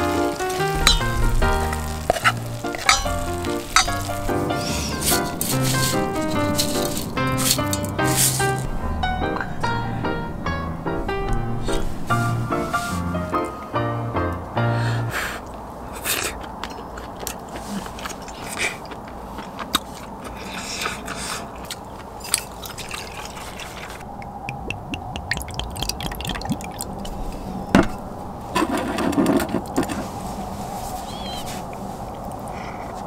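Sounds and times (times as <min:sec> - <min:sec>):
chopsticks scraping a metal bowl: 0:01.8 - 0:08.7.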